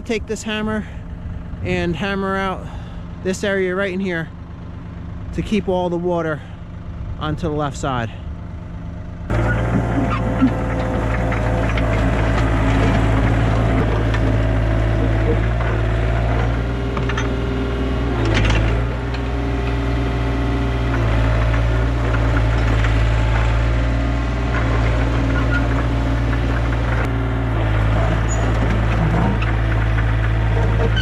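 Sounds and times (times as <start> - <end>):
excavator diesel engine under load: 0.0 - 31.0.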